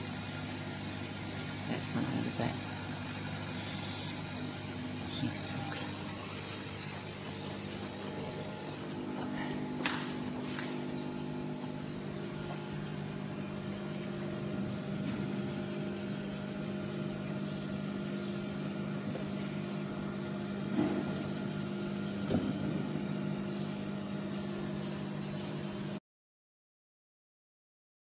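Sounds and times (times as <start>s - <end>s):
laser cutter mechanical hum: 0.0s - 26.0s
machine knocks: 20.7s - 21.3s, 22.2s - 22.9s.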